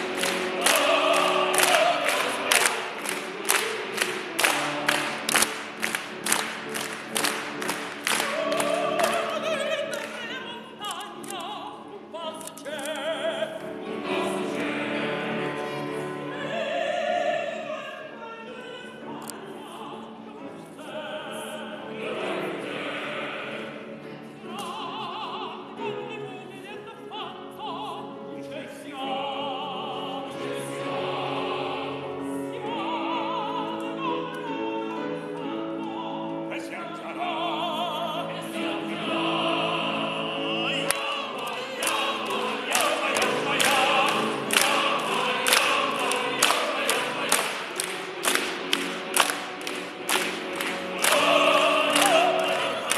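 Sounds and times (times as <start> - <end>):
operatic woman singing: 0.0 - 4.5, 8.1 - 23.6, 24.2 - 47.7
piano accompaniment: 0.0 - 11.5, 19.0 - 52.9.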